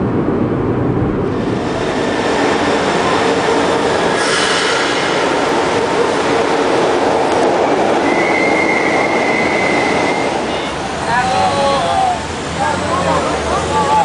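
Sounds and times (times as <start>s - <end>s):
metro train rumbling: 0.0s - 14.0s
high-pitched squeal: 1.3s - 12.0s.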